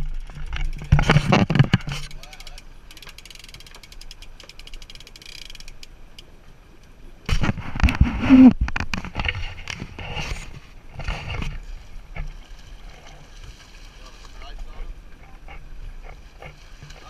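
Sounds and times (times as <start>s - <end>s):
splashing and rushing water: 0.0s - 17.0s
fishing reel clicking: 2.0s - 7.0s.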